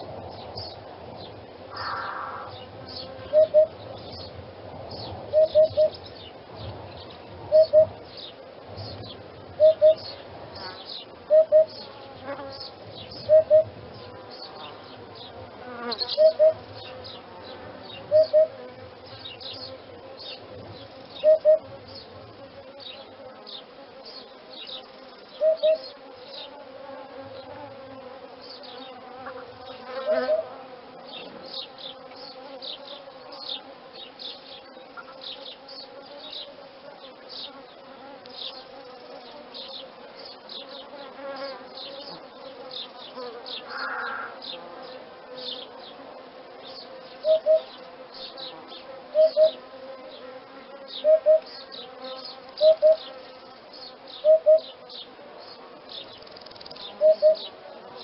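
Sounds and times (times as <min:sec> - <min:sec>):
insects buzzing: 0:00.0 - 0:58.0
faint high chirps: 0:56.2 - 0:57.5.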